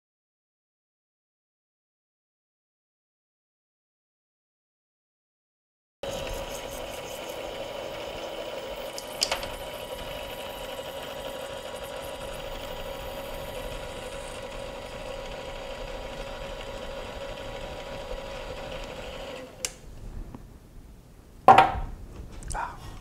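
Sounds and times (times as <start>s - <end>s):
lathe motor whining: 6.0s - 19.8s
motor switch click: 18.8s - 19.8s
short knock: 21.5s - 21.9s.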